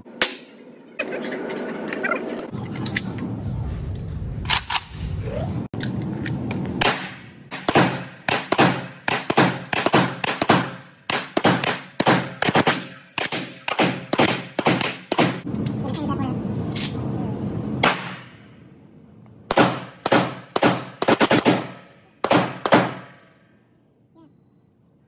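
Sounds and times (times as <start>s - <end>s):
pistol shots echoing indoors: 19.5s - 23.3s.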